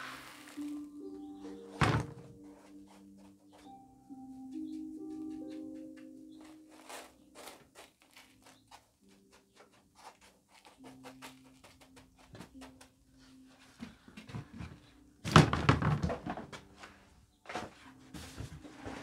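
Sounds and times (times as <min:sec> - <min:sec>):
gritty soil crunching in pot: 0:00.0 - 0:01.3.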